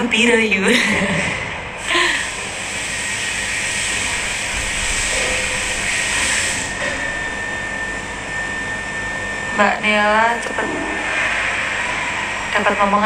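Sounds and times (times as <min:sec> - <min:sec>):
rushing hiss of blowing air: 0:01.8 - 0:06.9.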